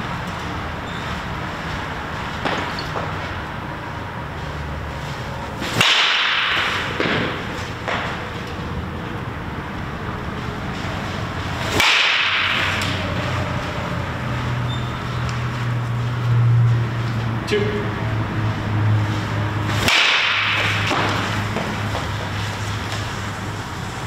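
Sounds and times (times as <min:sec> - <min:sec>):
bat cracking on ball: 0:02.4 - 0:03.2, 0:05.6 - 0:08.2, 0:11.6 - 0:13.0, 0:19.7 - 0:23.1.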